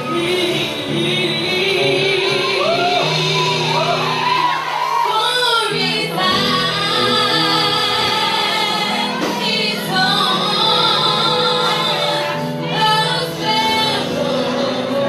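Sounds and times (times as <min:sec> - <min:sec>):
girl singing gospel song: 0:04.8 - 0:15.0.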